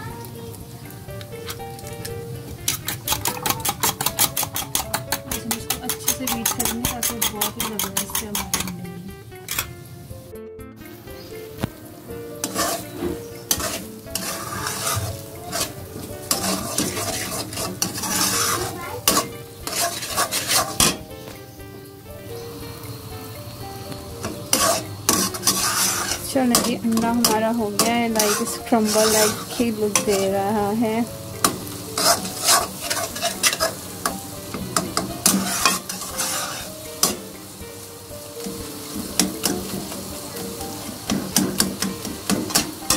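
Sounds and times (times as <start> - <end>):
eggs sizzling in oil: 0.0 - 42.9
metal spatula scraping pan: 2.5 - 8.8, 9.4 - 9.8, 12.4 - 21.1, 24.2 - 30.5, 31.4 - 37.6, 40.8 - 42.9.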